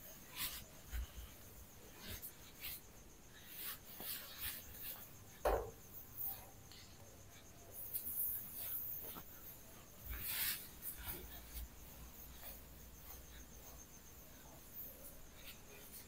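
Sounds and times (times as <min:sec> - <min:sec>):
squeaking strokes on whiteboard: 0:00.0 - 0:16.0
loud knock: 0:05.4 - 0:05.8.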